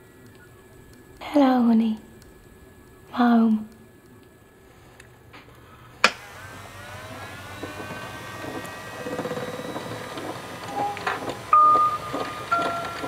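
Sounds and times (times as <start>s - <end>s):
motorised machine whining and ticking: 0.0s - 1.2s, 6.0s - 13.0s.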